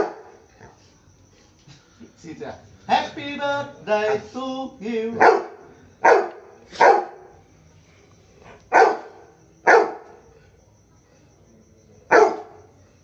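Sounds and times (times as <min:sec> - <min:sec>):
dog barking: 0:00.0 - 0:00.8, 0:05.2 - 0:07.3, 0:08.7 - 0:10.2, 0:12.1 - 0:12.7.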